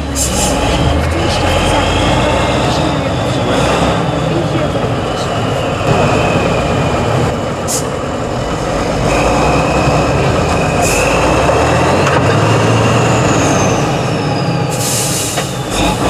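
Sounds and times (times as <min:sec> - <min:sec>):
high whine: 0:00.0 - 0:11.5
truck diesel engine labouring: 0:00.0 - 0:16.0.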